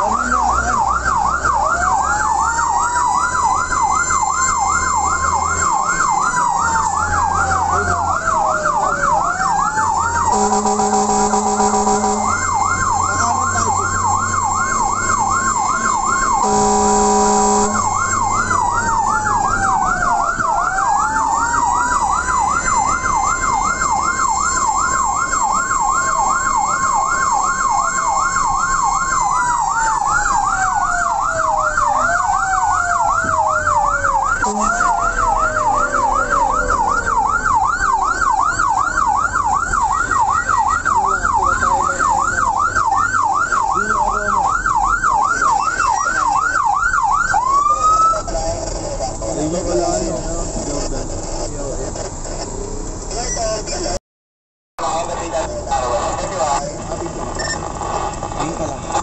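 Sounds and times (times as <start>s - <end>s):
siren yelp and wail: 0.0s - 50.2s
long horn blast: 10.3s - 12.8s, 16.4s - 18.2s, 34.4s - 35.4s.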